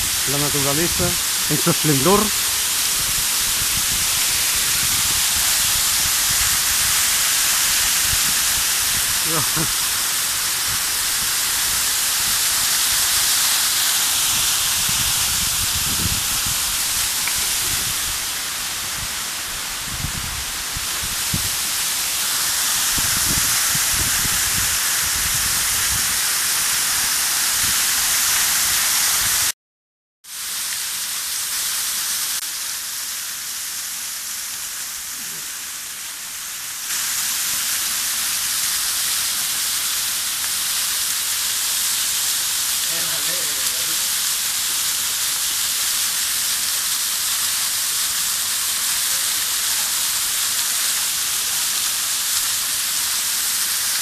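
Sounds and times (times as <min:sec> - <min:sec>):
waterfall splashing onto boulders: 0:00.0 - 0:29.6, 0:30.3 - 0:54.0.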